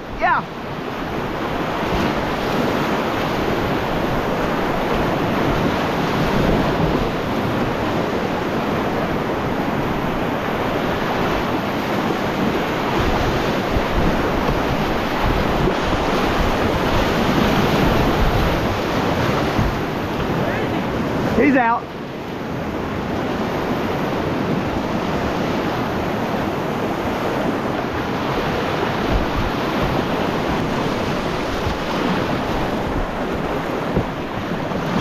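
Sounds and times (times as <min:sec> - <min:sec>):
river rapids rushing: 0:00.1 - 0:21.8, 0:24.1 - 0:35.0.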